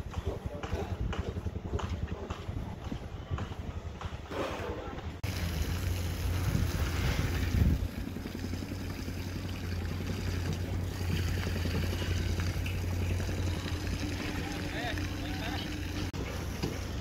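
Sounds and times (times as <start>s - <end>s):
wind on microphone: 0.0s - 5.2s, 6.1s - 8.1s
low rumble: 5.0s - 16.2s
motor droning: 5.2s - 17.0s
water spraying from a hose: 5.2s - 17.0s.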